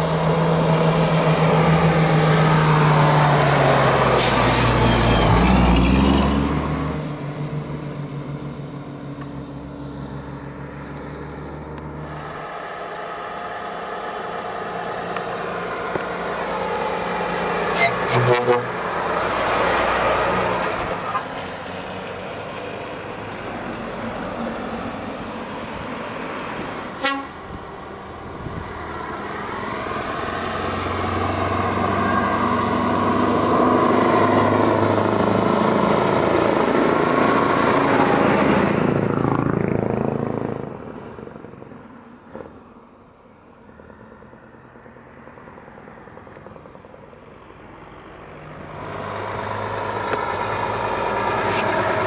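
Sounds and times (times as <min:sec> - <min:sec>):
road traffic: 0:00.0 - 0:52.0
truck diesel engines passing: 0:00.0 - 0:52.0.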